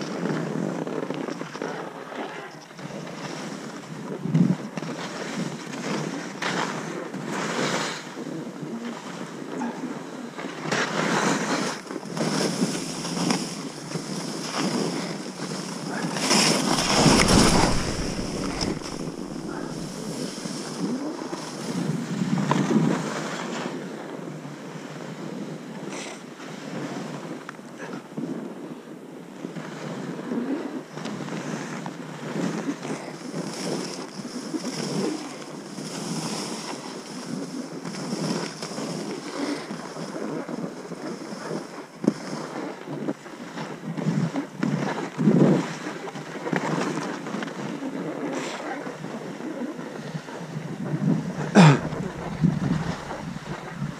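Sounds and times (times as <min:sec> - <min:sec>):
snow swishing under skis: 0:12.3 - 0:21.8, 0:49.9 - 0:53.9
wind buffeting microphone: 0:15.8 - 0:22.4, 0:49.9 - 0:53.9.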